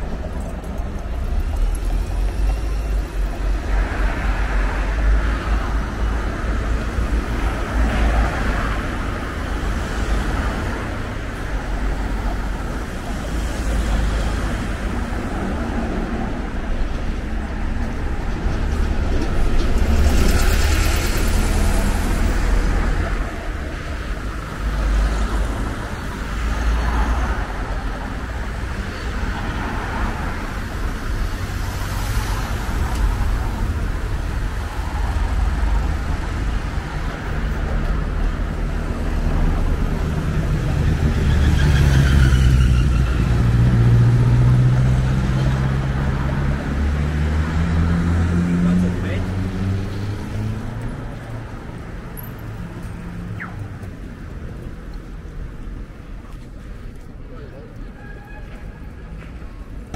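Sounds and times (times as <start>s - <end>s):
vehicle engine hum: 0.0s - 26.6s
cars driving past: 0.0s - 59.9s.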